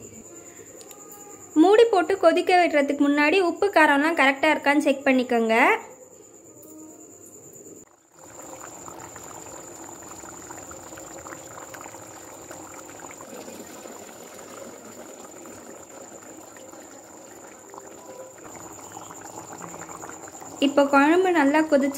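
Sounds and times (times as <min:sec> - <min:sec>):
curry boiling and bubbling: 0:07.9 - 0:21.9.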